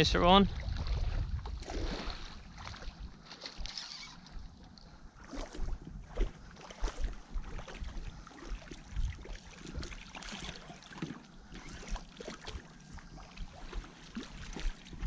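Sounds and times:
wind gusting on microphone: 0.0 - 9.9.

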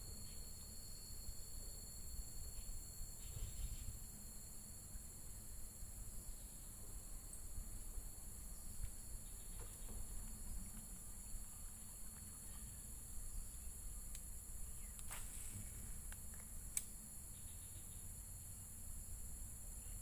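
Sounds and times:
crickets chirping: 0.0 - 20.0
faint clicks: 14.9 - 15.2, 16.1 - 16.9.

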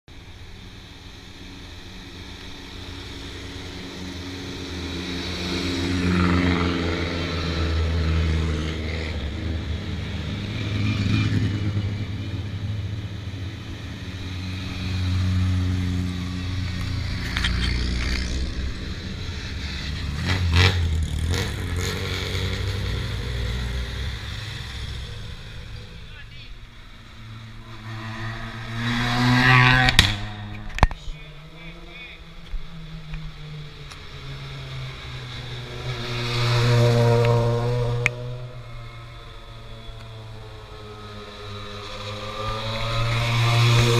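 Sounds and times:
cars driving past: 0.1 - 43.9
sharp cracks: 29.9 - 31.0.

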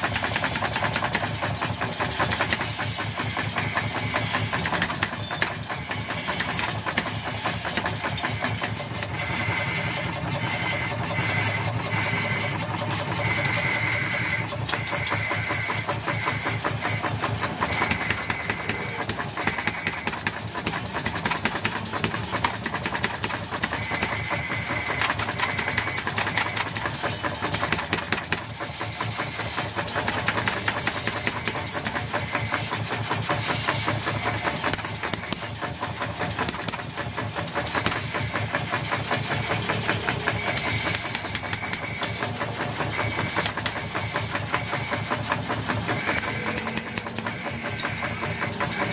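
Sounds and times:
power hammer pounding steel: 0.0 - 48.9.

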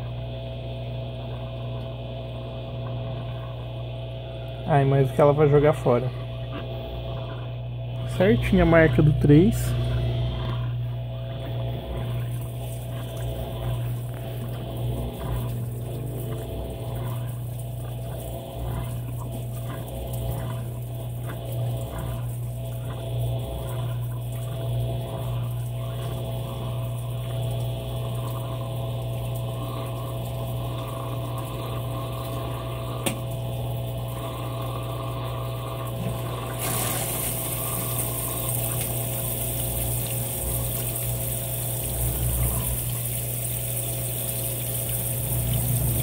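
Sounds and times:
drain pump humming: 0.0 - 46.0
water draining from tub: 11.3 - 46.0.

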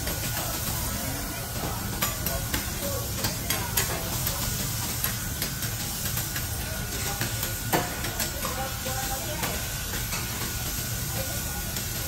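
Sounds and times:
beef sizzling on griddle: 0.0 - 12.0.

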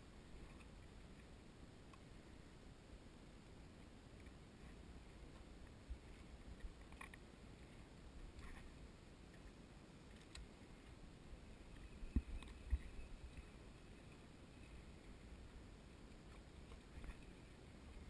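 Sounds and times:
faint clicks: 0.4 - 2.1, 3.8 - 11.0.

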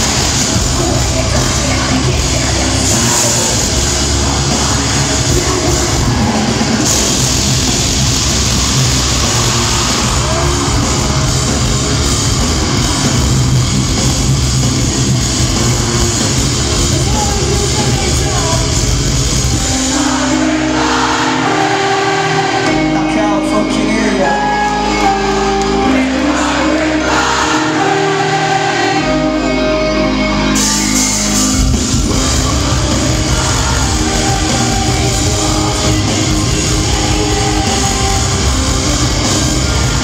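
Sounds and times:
voices singing: 0.0 - 7.7, 15.5 - 23.3, 23.9 - 31.3, 31.9 - 40.0
bass notes: 0.0 - 40.0
held keyboard chords: 0.0 - 40.0
live metal band playing: 0.0 - 40.0.

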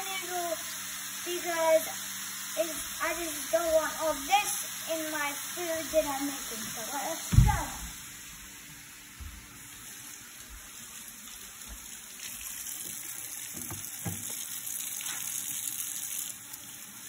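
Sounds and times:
faucet running into steel sink: 9.7 - 17.0.

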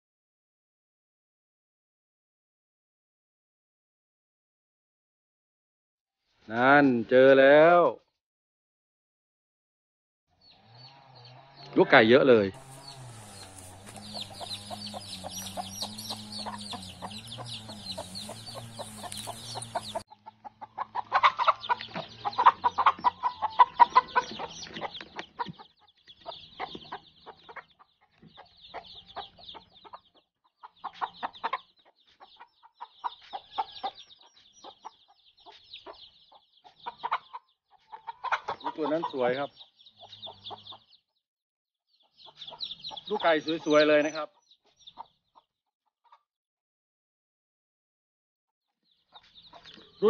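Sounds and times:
chicks peeping: 10.3 - 41.2, 41.9 - 46.2, 48.8 - 50.0
hen clucking: 10.5 - 41.0, 42.0 - 46.3, 48.9 - 50.0.

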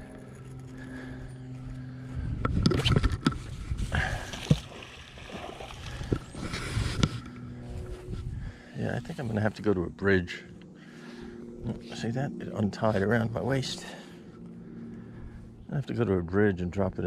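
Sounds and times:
low motor hum: 0.0 - 17.0.

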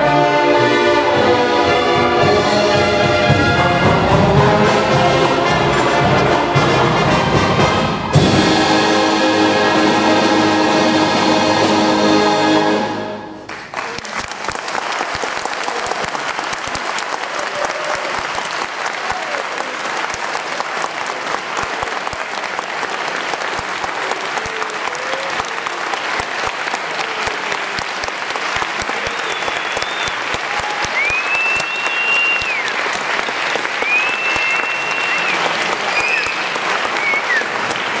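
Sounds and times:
audience applauding: 13.4 - 38.0
long high whistles: 29.2 - 30.2, 30.9 - 32.8, 33.8 - 37.5.

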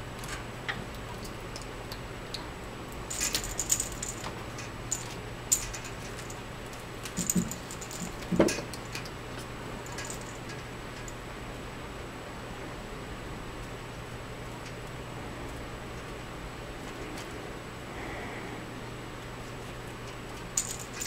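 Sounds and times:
light clicking and rattling: 0.2 - 11.2, 19.5 - 21.0.

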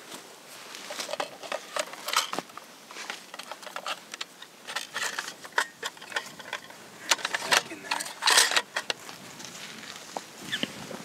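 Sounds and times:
clothing and dry brush rustling: 0.0 - 3.4, 9.0 - 11.0.

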